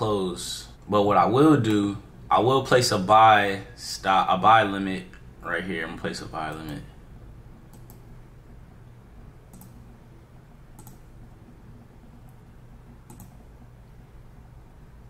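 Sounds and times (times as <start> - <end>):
steady low hum: 0.0 - 15.0
computer mouse clicking: 7.7 - 8.1, 9.5 - 9.9, 10.7 - 11.2, 13.0 - 13.5.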